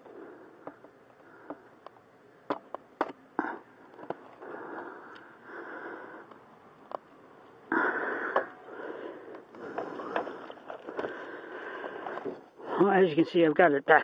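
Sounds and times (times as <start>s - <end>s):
rustling handling noise: 9.4s - 12.6s.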